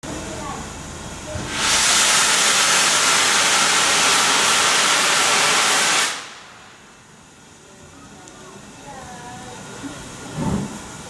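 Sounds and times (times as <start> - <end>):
steam locomotive hissing: 0.1 - 7.0, 9.5 - 11.0.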